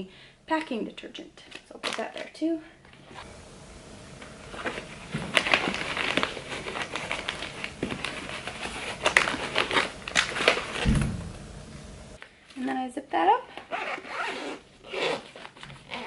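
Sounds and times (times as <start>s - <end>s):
plastic pouches crinkling: 4.6s - 10.9s
low thump: 10.8s - 12.2s.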